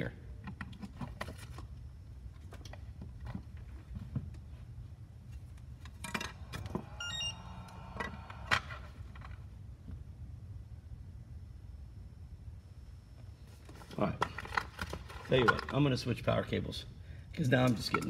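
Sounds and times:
faint electronic hum: 0.0 - 18.0
short electronic beeps: 6.9 - 7.8.

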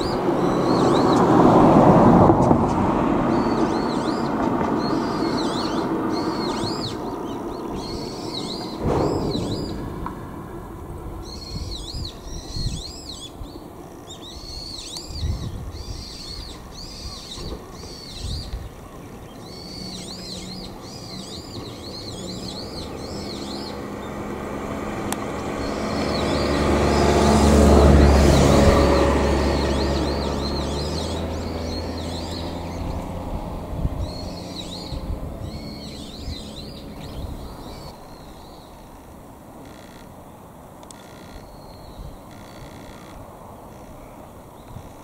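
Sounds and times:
vehicle rumble: 0.0 - 45.0.

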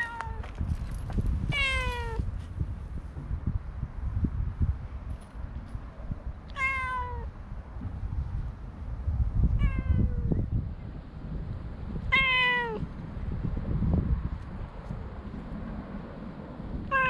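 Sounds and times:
cat meowing: 0.0 - 0.4, 1.5 - 2.2, 6.5 - 7.3, 9.6 - 10.2, 12.1 - 12.9.

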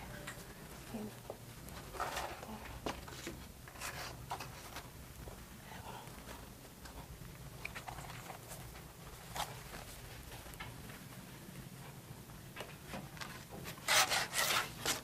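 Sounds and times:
low room hum: 0.0 - 15.0
clicks taps and cardboard rustles: 1.2 - 5.4.

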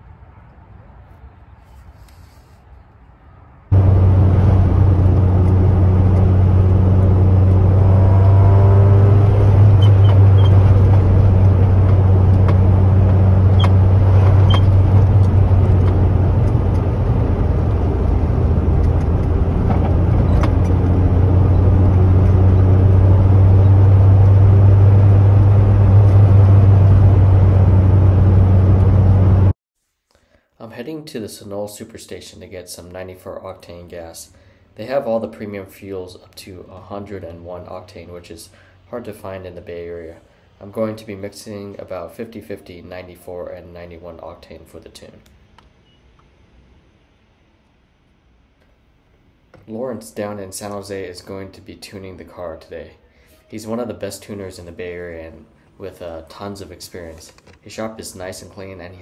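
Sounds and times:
car engine and exhaust droning: 3.7 - 29.5.

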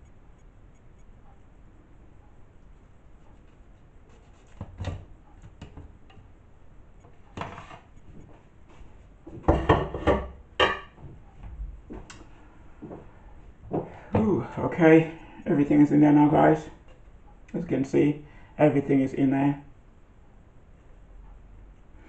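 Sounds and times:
kitchen items knocking and rattling: 9.3 - 11.0.

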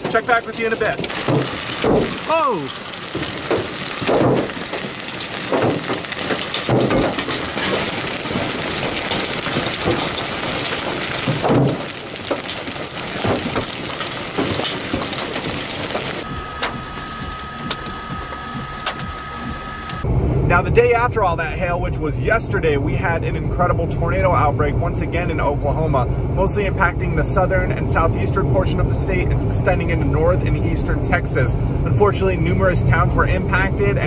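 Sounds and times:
hail and rain on car roof: 0.0 - 20.0
heavy hailstone thumps: 0.8 - 19.6
steady high tone: 16.2 - 20.8.

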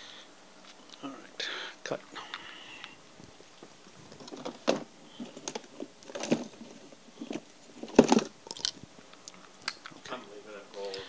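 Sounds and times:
small tools clattering: 4.1 - 8.7.

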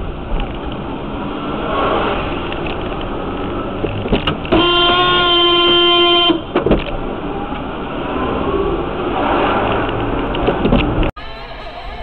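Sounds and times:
car road and engine noise: 0.0 - 12.0
car horn blast: 4.5 - 6.6.

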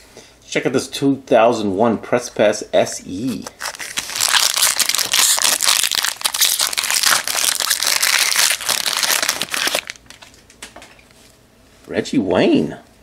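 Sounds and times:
foil wrapper crinkling: 3.4 - 11.0.

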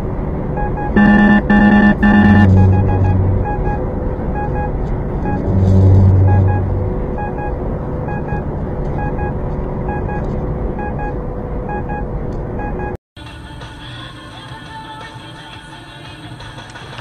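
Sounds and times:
low drone: 0.0 - 12.7
truck engine and road noise: 0.0 - 14.4
electronic alert beeps: 0.6 - 3.8, 4.4 - 10.2, 10.8 - 12.0, 12.6 - 13.0.

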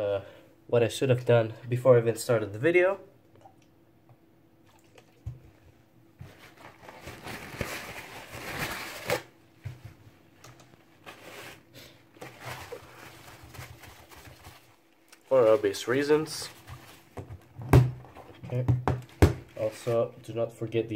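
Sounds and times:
paper towel rustling: 6.2 - 17.2, 19.4 - 20.4.

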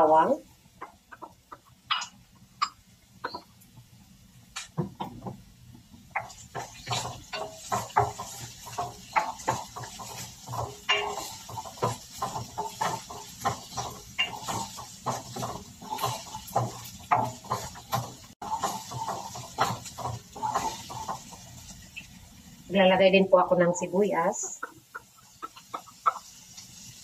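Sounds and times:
garlic sizzling in hot oil: 0.0 - 27.0
spoon scraping in pan: 6.2 - 22.1.

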